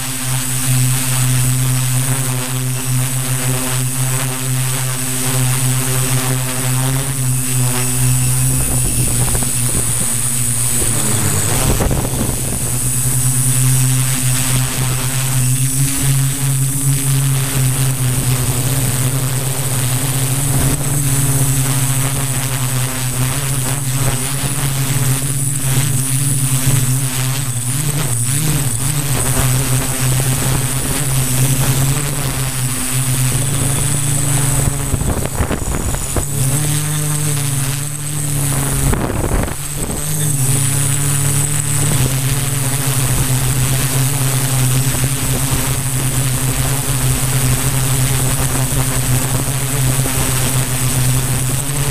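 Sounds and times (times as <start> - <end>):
drone propellers buzzing: 0.0 - 51.9
high motor whine: 0.0 - 51.9
wind buffeting microphone: 8.0 - 14.1, 33.3 - 37.0, 38.3 - 41.4.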